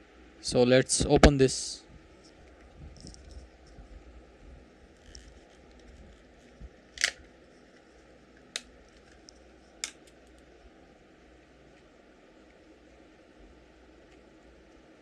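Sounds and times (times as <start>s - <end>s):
sharp plastic snaps: 7.0s - 7.2s.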